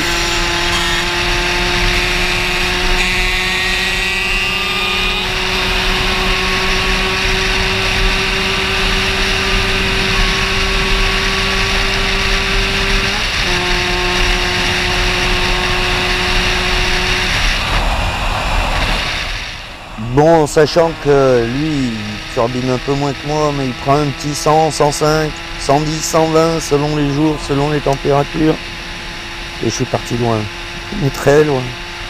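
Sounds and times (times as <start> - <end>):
two-stroke moped engine revving: 0.0 - 32.0
wind rush: 16.3 - 23.8.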